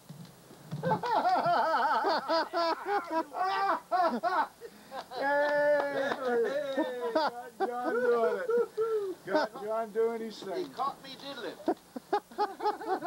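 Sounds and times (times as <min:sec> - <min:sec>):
person laughing: 0:00.8 - 0:09.7, 0:11.6 - 0:13.0
person calling out: 0:02.8 - 0:03.8.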